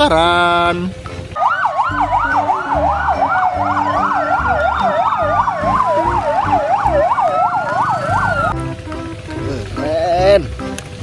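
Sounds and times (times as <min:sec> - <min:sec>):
low rumbling: 0:00.0 - 0:09.8
wailing siren: 0:01.3 - 0:08.8
electronic yelp siren: 0:01.4 - 0:08.6.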